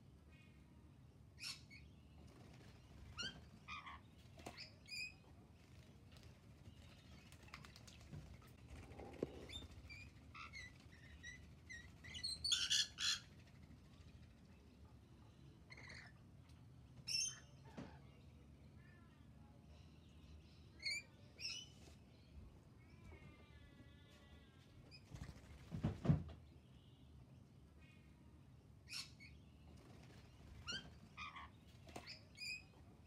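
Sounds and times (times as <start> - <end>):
bird trill: 9.5 - 13.3.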